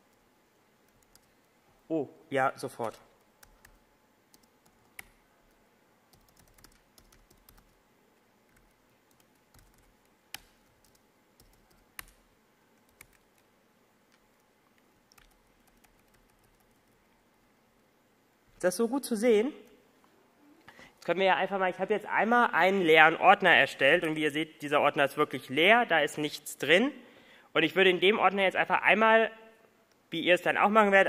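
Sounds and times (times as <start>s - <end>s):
typing on laptop keyboard: 0.9s - 1.4s, 2.8s - 5.2s, 6.1s - 7.8s, 8.5s - 12.2s, 12.8s - 13.5s, 15.1s - 17.0s.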